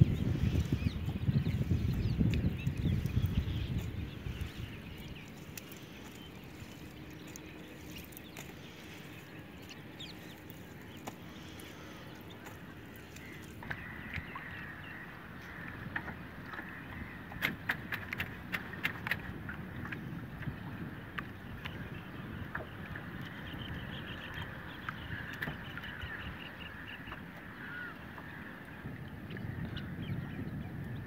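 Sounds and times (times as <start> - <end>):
water lapping and dripping: 0.0 - 31.0
small splashes: 0.5 - 14.7
wet net hauled over canoe: 0.6 - 14.7.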